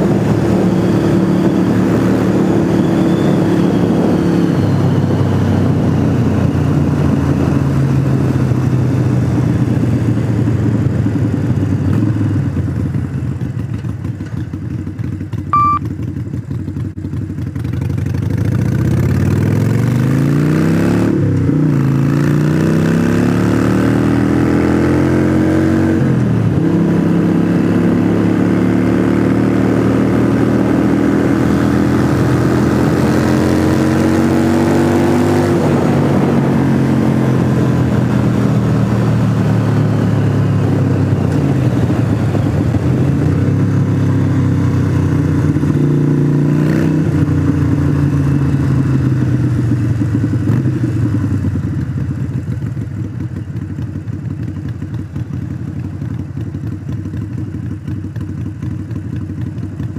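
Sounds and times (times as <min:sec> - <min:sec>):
motorcycle engine running: 0:00.0 - 0:59.9.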